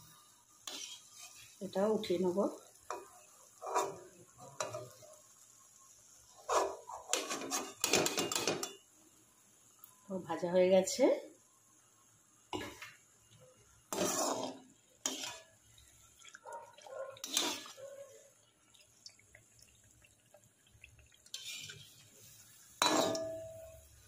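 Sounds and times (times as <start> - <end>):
spatula scraping a wok: 0.6 - 1.6, 2.9 - 5.1, 6.3 - 8.8, 13.9 - 15.6, 17.2 - 17.8, 21.3 - 23.7.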